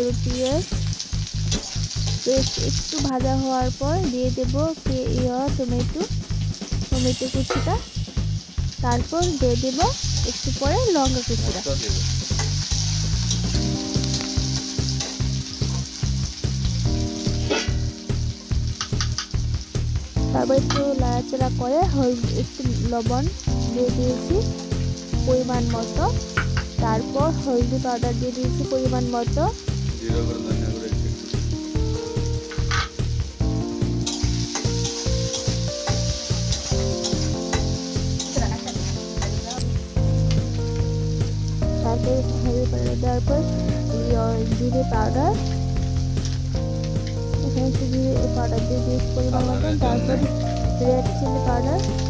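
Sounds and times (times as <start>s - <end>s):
background music with bass: 0.0s - 52.0s
food sizzling in oil: 0.0s - 52.0s
spatula stirring: 1.5s - 3.0s, 34.1s - 39.4s
spatula scraping pan: 17.4s - 18.0s, 32.5s - 33.0s.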